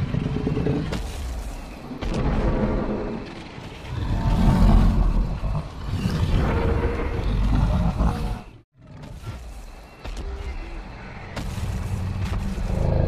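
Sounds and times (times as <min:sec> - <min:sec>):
deep dinosaur roars: 0:03.8 - 0:08.6.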